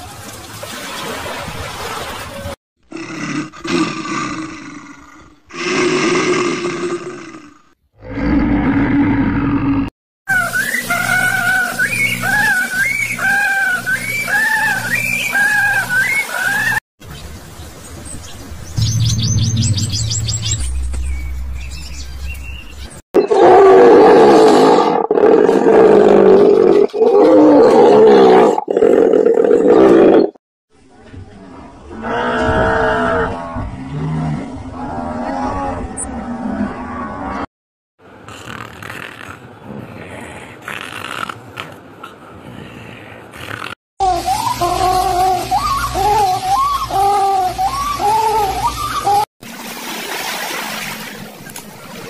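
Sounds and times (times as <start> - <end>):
large animal roaring: 2.9 - 9.9, 23.2 - 30.4, 31.9 - 37.5
brief rushing noise: 18.8 - 23.0.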